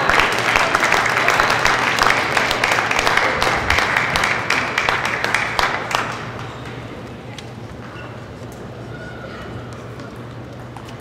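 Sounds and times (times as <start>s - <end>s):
spectators applauding: 0.0s - 6.9s.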